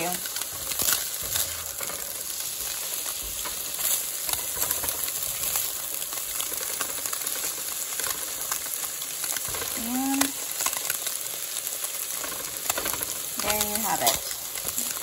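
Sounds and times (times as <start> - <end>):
spatula scraping a pan: 0.0 - 9.8
food sizzling in a skillet: 0.0 - 15.0.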